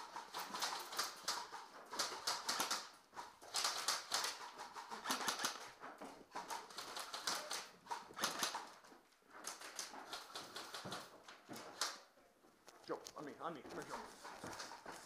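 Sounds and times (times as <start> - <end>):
airsoft rifles firing bursts: 3.6 - 5.7, 6.8 - 8.7.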